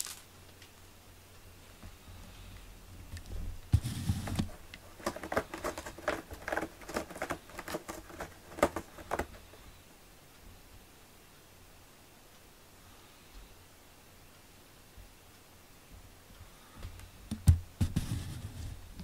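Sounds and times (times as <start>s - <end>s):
cat claws scratching cardboard: 3.8s - 9.7s.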